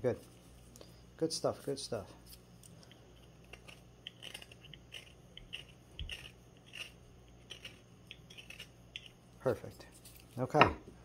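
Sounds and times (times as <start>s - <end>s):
knife shaving wood: 2.2s - 10.5s.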